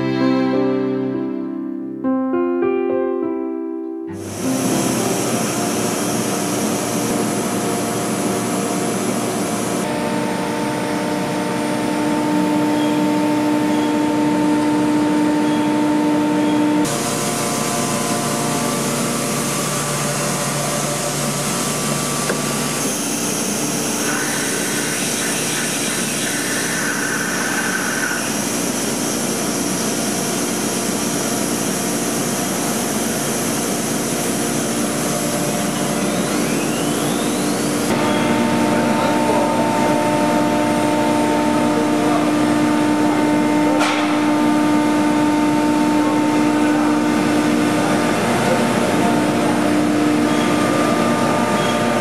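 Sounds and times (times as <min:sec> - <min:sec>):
machine drone: 0:04.1 - 0:52.0
whining tones: 0:35.6 - 0:38.5.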